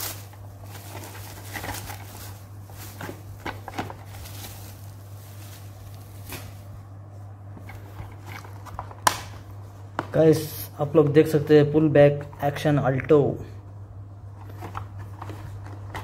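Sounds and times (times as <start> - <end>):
bubble wrap rustling and crinkling: 0.0 - 10.4
steady low hum: 0.0 - 16.0.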